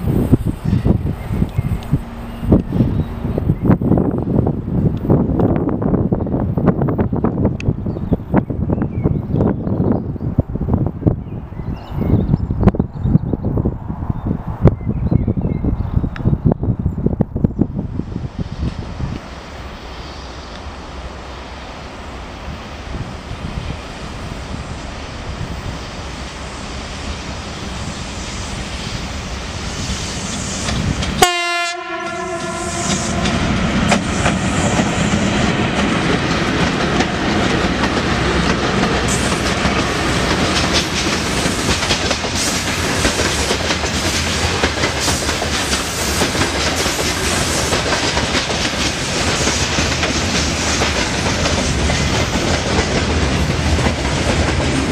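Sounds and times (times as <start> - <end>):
locomotive rumble: 0.0 - 54.9
train horn blast: 1.6 - 3.5, 31.2 - 34.2.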